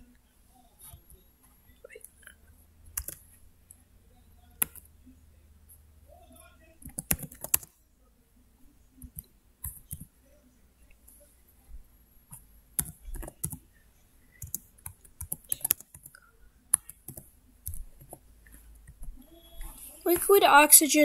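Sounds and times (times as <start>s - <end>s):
keyboard typing: 2.0s - 3.3s, 4.6s - 4.9s, 6.8s - 7.7s, 9.0s - 10.1s, 12.3s - 13.6s, 14.4s - 19.0s.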